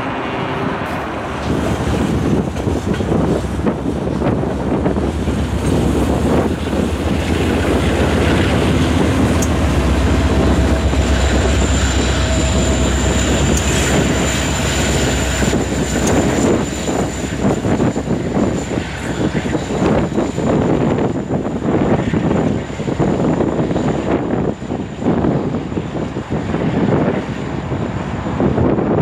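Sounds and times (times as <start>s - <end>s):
diesel locomotive engine rumble: 0.0s - 29.0s
freight train rolling on rails: 0.0s - 29.0s
high-pitched whine: 6.4s - 22.4s.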